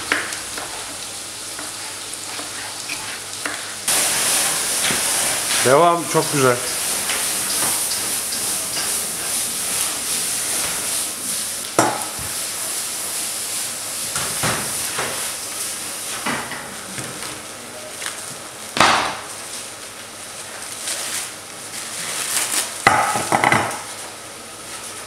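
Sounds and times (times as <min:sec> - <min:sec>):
vegetables sizzling in frying pan: 0:00.0 - 0:16.9.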